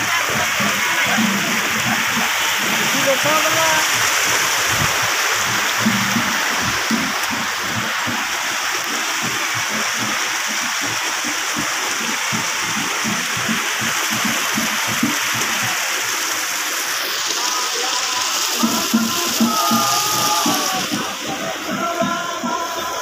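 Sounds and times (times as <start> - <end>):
low thumps: 0.0 - 15.8
running water rushing: 0.0 - 23.0.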